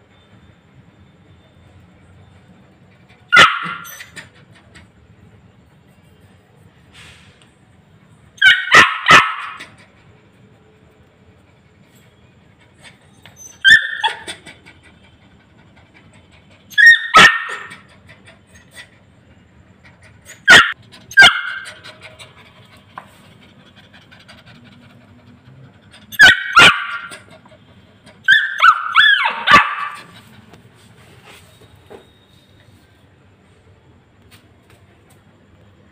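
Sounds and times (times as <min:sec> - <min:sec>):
puppy barking and yipping: 0:03.3 - 0:04.4, 0:08.4 - 0:10.0, 0:12.8 - 0:14.9, 0:16.6 - 0:18.9, 0:20.2 - 0:22.4, 0:25.9 - 0:30.4.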